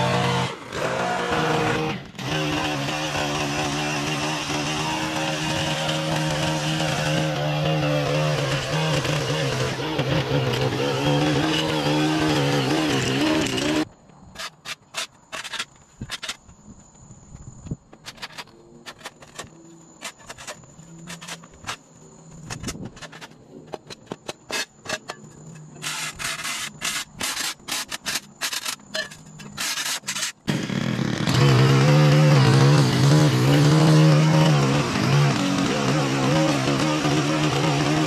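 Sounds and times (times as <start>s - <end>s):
small gas engine running: 0.0s - 13.9s, 29.6s - 38.0s
faint insect drone: 1.6s - 31.2s
shovel scraping concrete: 22.4s - 30.5s.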